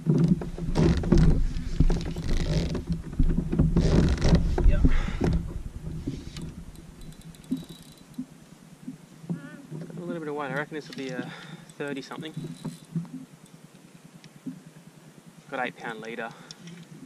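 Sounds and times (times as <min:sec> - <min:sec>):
gusty wind on microphone: 0:00.0 - 0:07.5.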